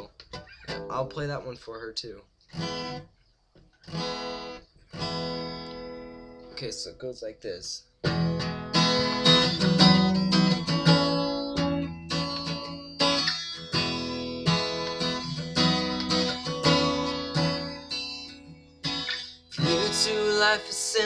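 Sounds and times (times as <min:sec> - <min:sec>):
acoustic guitar strumming chords: 0:03.9 - 0:06.7, 0:08.0 - 0:21.0.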